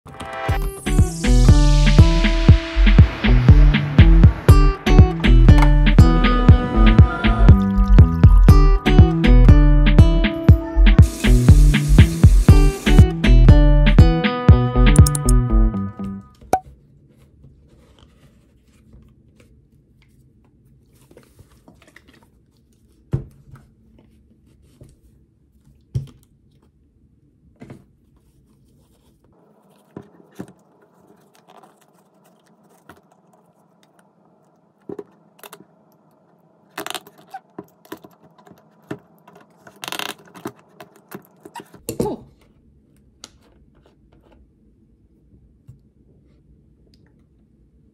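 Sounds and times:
scrapes and crinkles: 0:16.7 - 0:26.8, 0:27.6 - 0:34.1.

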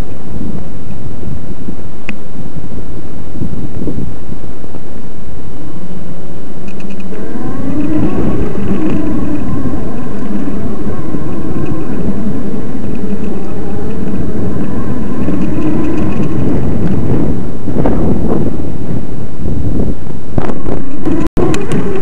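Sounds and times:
wind buffeting microphone: 0:00.0 - 0:22.0
electric bike motor whining: 0:05.4 - 0:22.0.

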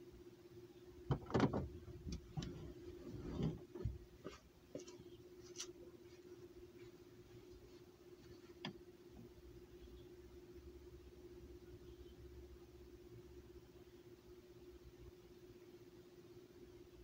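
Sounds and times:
faint steady hum: 0:00.0 - 0:17.0
clicks and knocks in vehicle cabin: 0:01.1 - 0:02.7.

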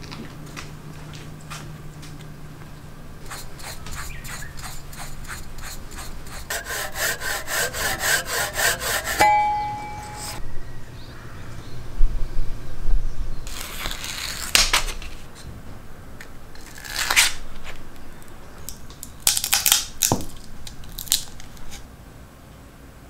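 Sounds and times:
sandpaper rustling and scraping: 0:03.2 - 0:09.2, 0:13.5 - 0:15.3.

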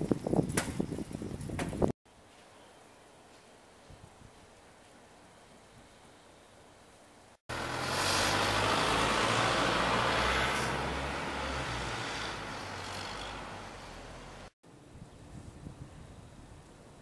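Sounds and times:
bus engine driving off: 0:07.5 - 0:14.5.

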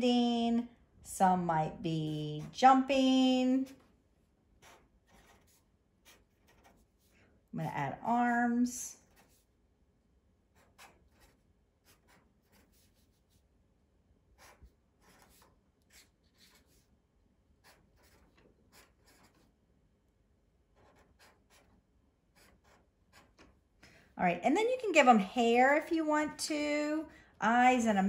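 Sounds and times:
marker scratching on paper: 0:01.9 - 0:03.9, 0:04.5 - 0:07.3, 0:08.9 - 0:09.6, 0:10.4 - 0:13.6, 0:14.3 - 0:17.0, 0:17.6 - 0:19.6, 0:20.6 - 0:23.6.

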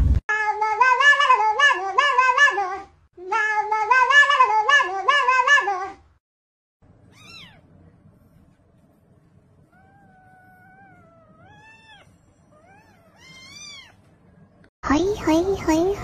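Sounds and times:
kitten meowing: 0:07.1 - 0:07.6, 0:09.8 - 0:14.0.

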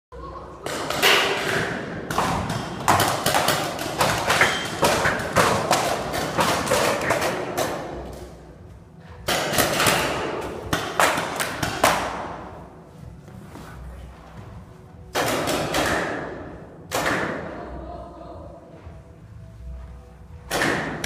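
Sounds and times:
sharp shots echoing in a hall: 0:00.6 - 0:08.4, 0:09.2 - 0:12.7, 0:15.1 - 0:17.7, 0:20.4 - 0:21.0.

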